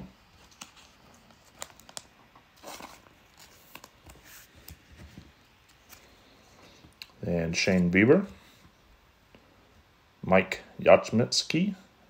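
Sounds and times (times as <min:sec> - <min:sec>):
trading cards shuffling: 0:00.4 - 0:06.2.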